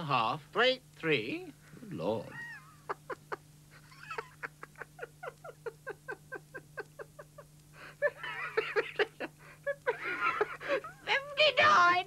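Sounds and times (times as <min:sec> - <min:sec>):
steady low hum: 0:00.0 - 0:12.0
man giggling: 0:02.3 - 0:11.0.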